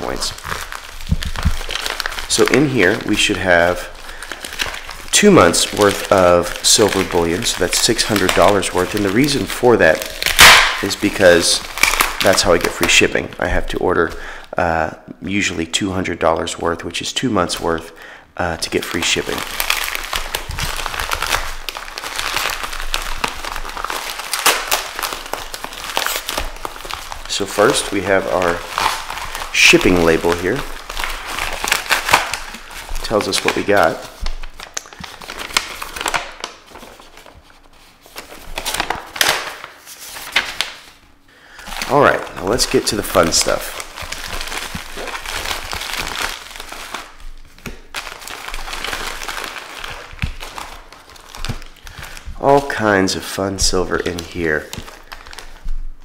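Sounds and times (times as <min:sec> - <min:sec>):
plastic crackle: 0:00.0 - 0:14.2, 0:18.6 - 0:56.0
plastic mailer crinkling: 0:00.0 - 0:14.2, 0:18.6 - 0:56.0.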